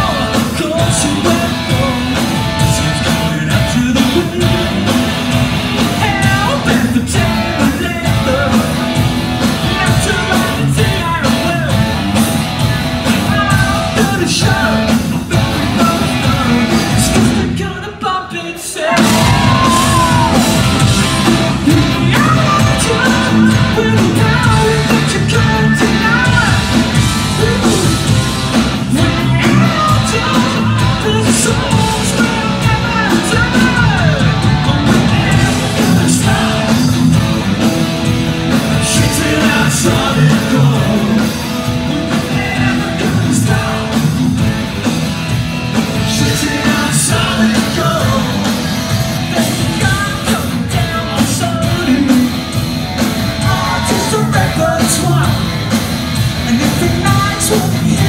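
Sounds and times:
rock band playing live: 0.0 - 58.0
person singing: 13.2 - 28.2, 28.8 - 37.3, 38.7 - 44.4, 53.4 - 55.4, 56.4 - 58.0.

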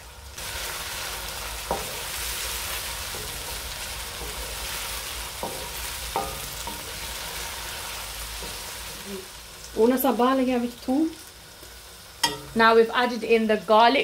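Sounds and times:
onion sizzling in oil: 0.0 - 14.0
spoon knocking against pan: 12.2 - 12.6.

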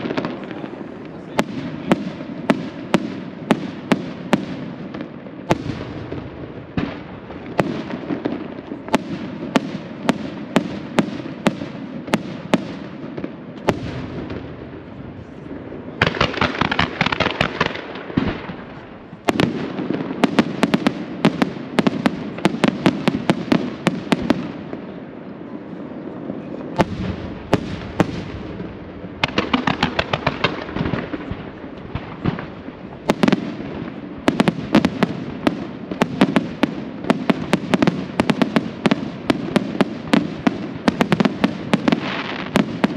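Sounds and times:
firework crackling: 0.0 - 25.2, 25.8 - 42.9.

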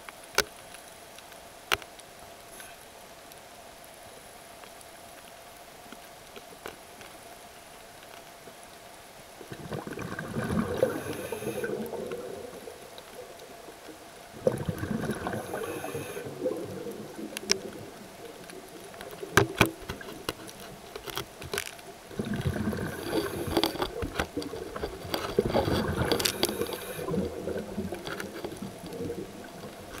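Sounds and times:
underwater exhaled bubbles gurgling: 9.3 - 21.0, 21.9 - 30.0.

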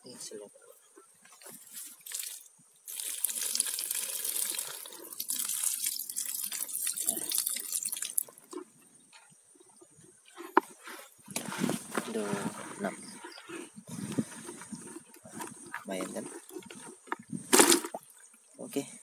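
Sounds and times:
water splashing in bucket: 1.9 - 8.6, 15.6 - 18.4
small clicks and drips: 1.9 - 9.4.

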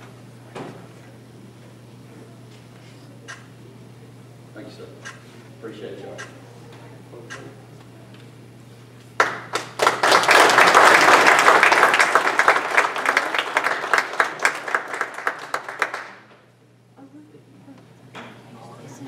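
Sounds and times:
audience applauding: 9.2 - 16.3.

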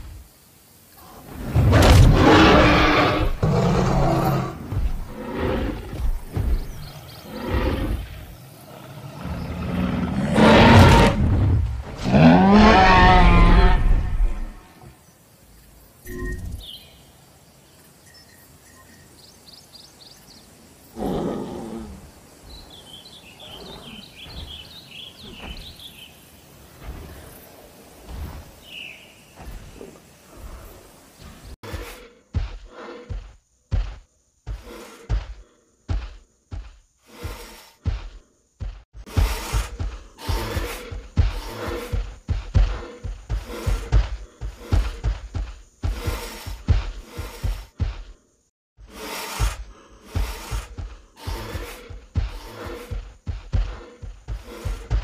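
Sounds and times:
dinosaur roars: 2.0 - 6.0, 7.1 - 11.4, 12.0 - 14.4
small birds chirping: 2.8 - 10.6, 14.3 - 55.0.

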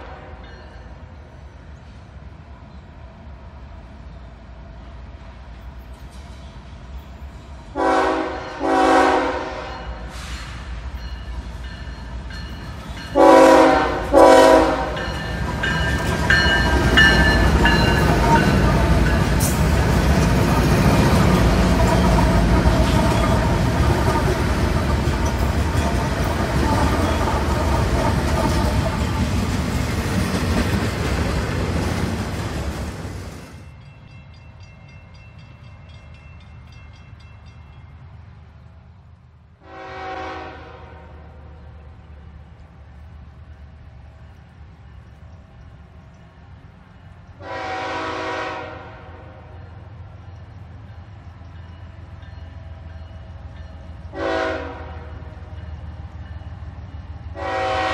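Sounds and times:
locomotive horn blasts: 0.0 - 0.5, 7.8 - 10.2, 13.1 - 15.2, 39.6 - 41.2, 47.4 - 49.5, 54.1 - 55.3, 57.4 - 57.9
train cars clacking on rails: 5.6 - 38.2
locomotives passing: 10.0 - 39.4.

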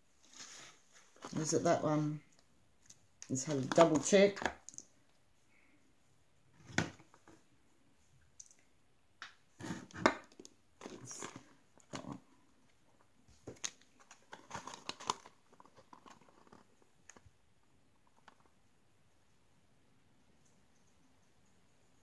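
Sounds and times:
packaging crinkling: 13.4 - 17.2.

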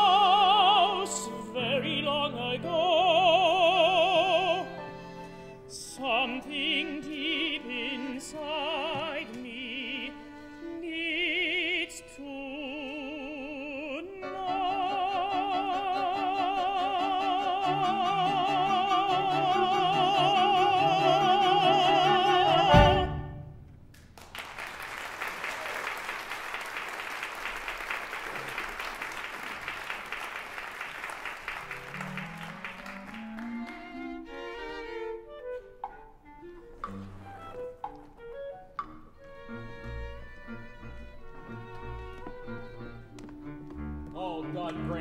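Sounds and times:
man singing opera: 0.0 - 4.8, 5.7 - 23.3, 44.0 - 45.0
small orchestra playing: 0.0 - 23.8, 31.4 - 45.0
audience applause: 24.1 - 34.0.

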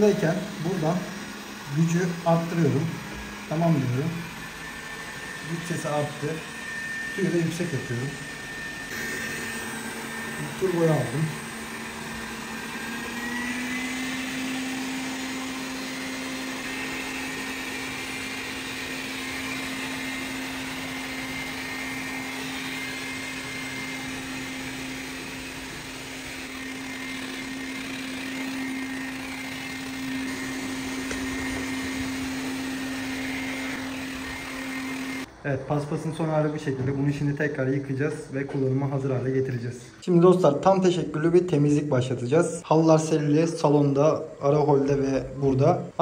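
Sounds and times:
robot vacuum motor hum: 0.0 - 35.4.

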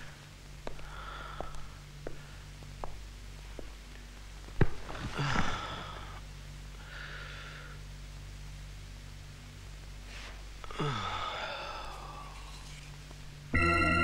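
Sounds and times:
man breathing heavily: 0.0 - 2.6, 4.9 - 7.9, 10.6 - 12.6
room hum: 0.0 - 14.0.

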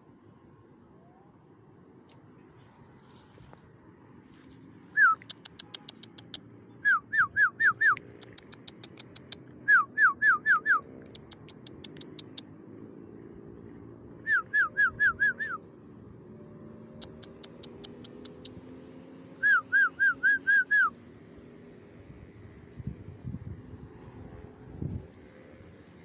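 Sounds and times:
sharp high ticks: 5.0 - 9.6, 10.6 - 12.6, 16.9 - 18.8
whistled falling calls: 14.2 - 15.7, 19.3 - 21.0.

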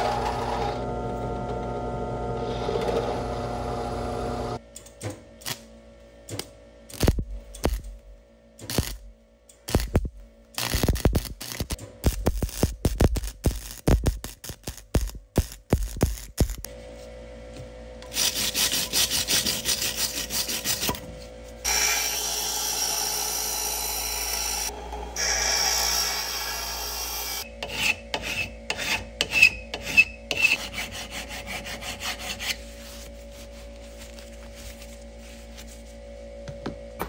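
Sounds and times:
hand rubbing abrasive strokes: 18.1 - 21.0.

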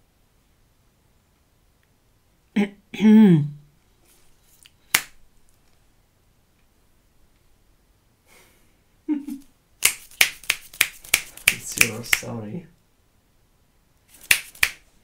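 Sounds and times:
sharp clicks of objects handled: 9.8 - 12.3.

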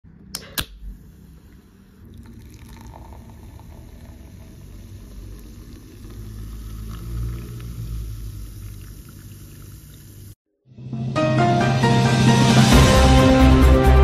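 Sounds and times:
soda pouring into a glass: 1.4 - 10.4.

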